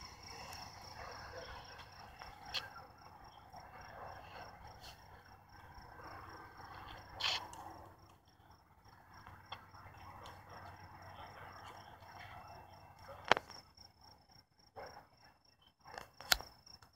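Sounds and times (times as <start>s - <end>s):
crickets chirping: 0.0s - 16.9s
sharp click: 16.0s - 16.5s.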